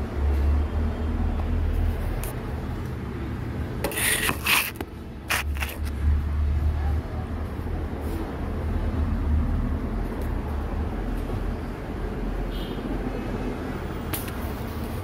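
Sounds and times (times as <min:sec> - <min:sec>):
objects scraping and rubbing: 0:03.8 - 0:06.0.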